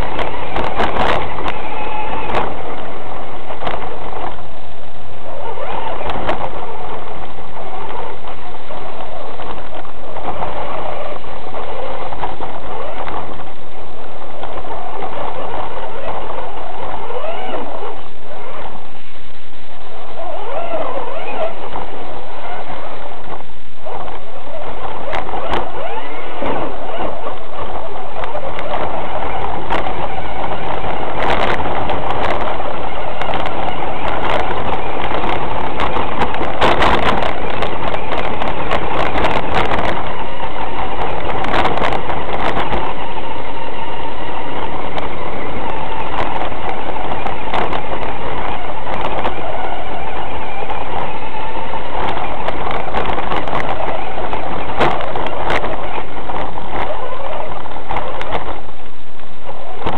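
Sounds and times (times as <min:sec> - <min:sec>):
rattle and rumble over rough ground: 0:00.0 - 0:59.9
toy car motor whining: 0:23.9 - 0:57.1.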